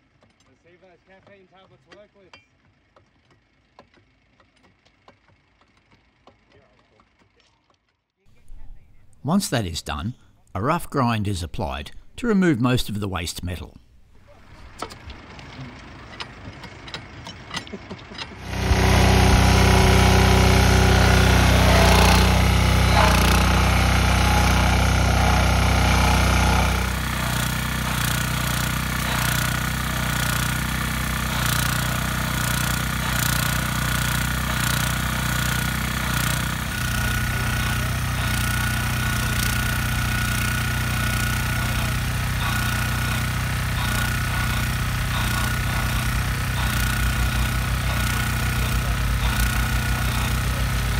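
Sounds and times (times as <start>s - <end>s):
rail grinder grinding metal: 14.4s - 50.9s.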